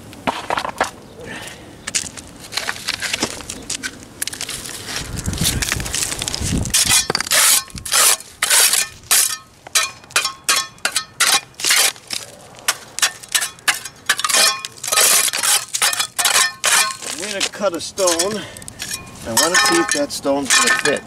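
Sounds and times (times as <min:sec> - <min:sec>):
metal tool chipping stone: 0:06.7 - 0:12.0, 0:12.7 - 0:21.0.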